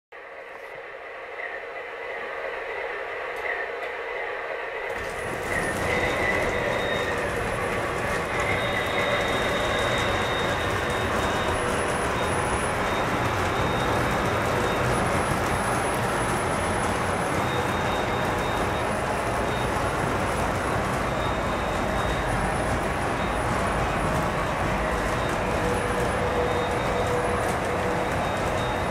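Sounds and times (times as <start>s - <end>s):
model train rolling rumble: 4.8s - 28.9s
faint thin wheel squeals: 5.0s - 20.4s.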